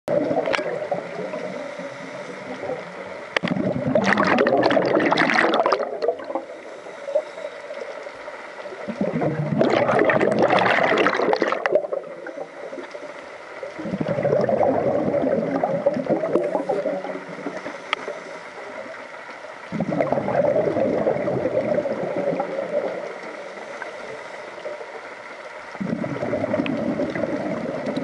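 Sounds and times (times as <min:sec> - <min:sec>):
water wash: 0:00.1 - 0:06.5, 0:08.8 - 0:24.4
diver exhaling bubbles: 0:03.4 - 0:06.5, 0:08.8 - 0:12.4, 0:13.8 - 0:17.6, 0:19.7 - 0:23.0, 0:25.8 - 0:28.0.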